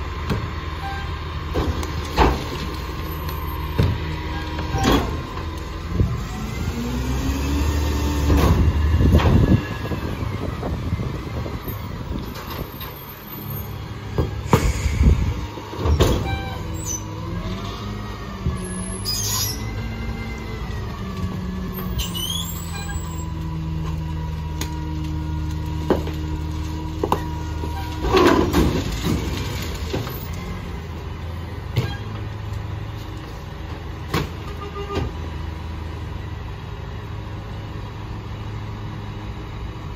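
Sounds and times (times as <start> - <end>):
truck engine revving: 0.0 - 12.3.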